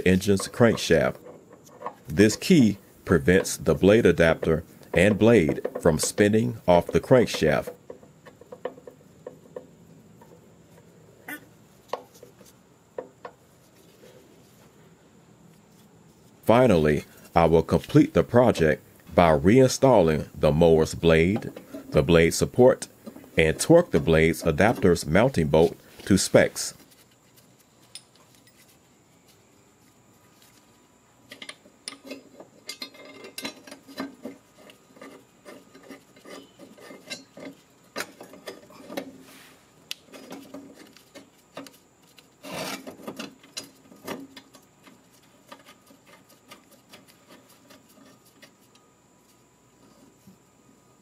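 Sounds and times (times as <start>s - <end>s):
metal blade scraping and clicking: 31.3s - 38.9s.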